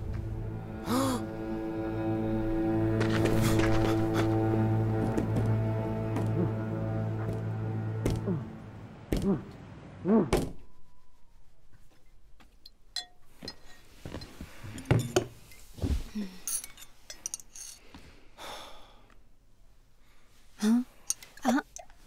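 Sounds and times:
music: 0:00.0 - 0:08.8
crockery clicks and clinks: 0:21.0 - 0:22.0.

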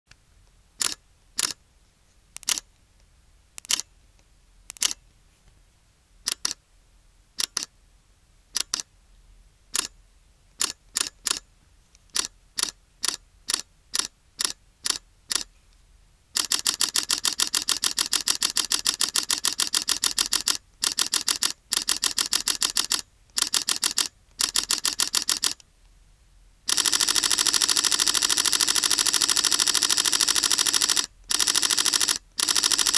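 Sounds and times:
camera shutter clicks: 0:16.4 - 0:25.6, 0:26.7 - 0:32.9.

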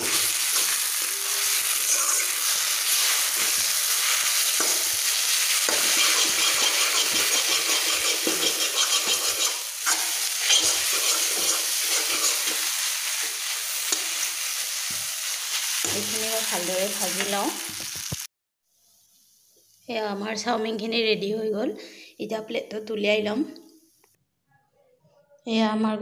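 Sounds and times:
spatula scraping noodles: 0:00.0 - 0:15.9
noodles sizzling in a hot pan: 0:00.0 - 0:18.3.

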